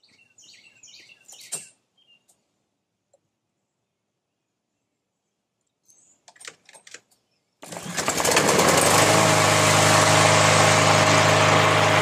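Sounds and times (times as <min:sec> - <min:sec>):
lawn mower engine running: 0:07.6 - 0:12.0.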